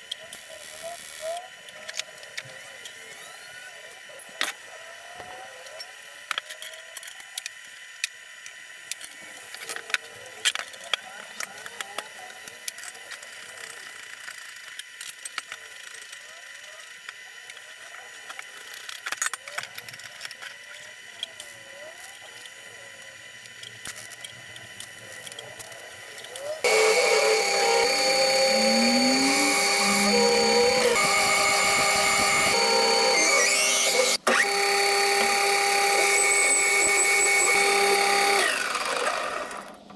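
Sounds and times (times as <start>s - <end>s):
faint steady whine: 0.0s - 39.9s
metal lathe running: 26.6s - 39.6s.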